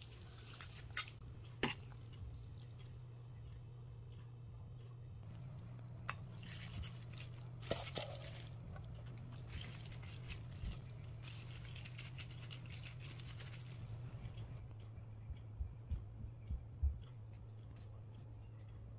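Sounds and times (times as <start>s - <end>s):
faint low hum: 0.1s - 18.9s
noodles squelching: 5.2s - 14.7s
plastic glove crinkling: 6.3s - 14.5s.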